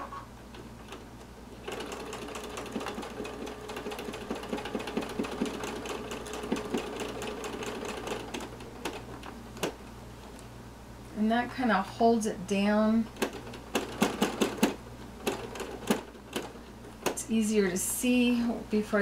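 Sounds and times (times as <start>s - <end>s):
sewing machine stitching: 1.6s - 9.8s, 13.1s - 17.2s.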